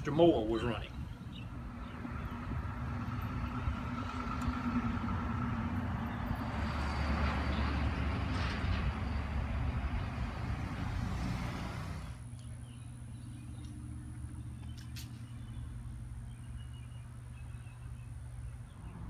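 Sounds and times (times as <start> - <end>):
vehicle engine hum: 0.0 - 19.0
vehicle passing: 1.5 - 12.3.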